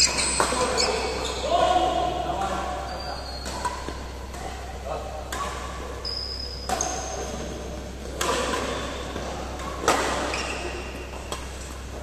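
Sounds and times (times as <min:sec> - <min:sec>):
short high squeaks: 0:00.0 - 0:01.4
rackets hitting shuttlecock: 0:03.4 - 0:11.6.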